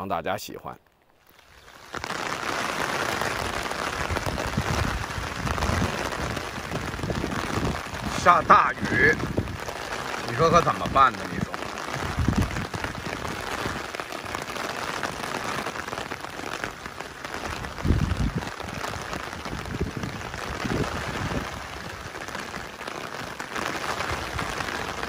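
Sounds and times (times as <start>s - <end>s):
heavy rain falling: 0.9s - 25.0s.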